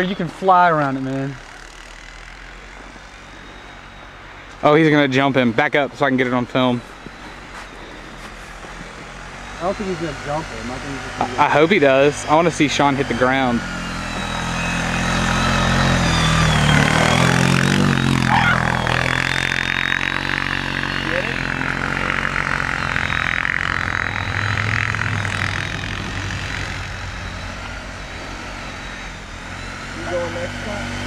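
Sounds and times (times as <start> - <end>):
atv engine under throttle: 0.0 - 31.0.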